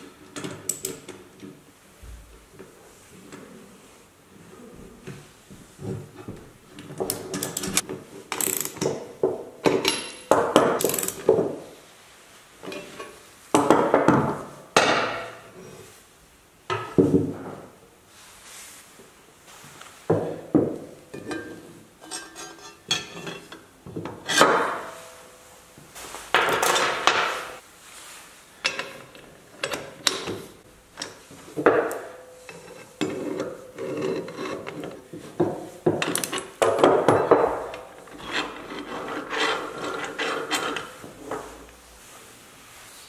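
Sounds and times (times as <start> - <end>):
metal clinks and scrapes: 32.4 - 35.1, 36.0 - 41.2.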